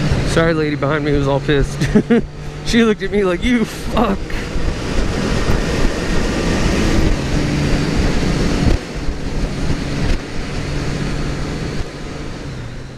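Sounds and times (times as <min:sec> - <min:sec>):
motorcycle engine running: 0:00.0 - 0:12.9
wind noise on microphone: 0:03.3 - 0:12.9.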